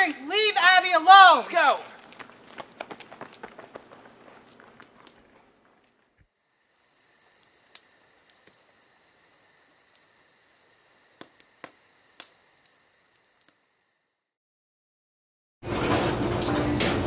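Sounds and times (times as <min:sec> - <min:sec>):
crickets chirping: 0:00.0 - 0:14.4
running footsteps on pavement: 0:01.3 - 0:06.2
sharp clicks: 0:09.7 - 0:13.6.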